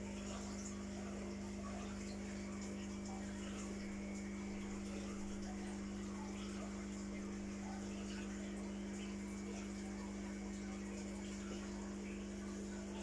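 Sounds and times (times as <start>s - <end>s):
aquarium filter pump humming: 0.0s - 13.0s
water trickling and bubbling: 0.0s - 13.0s.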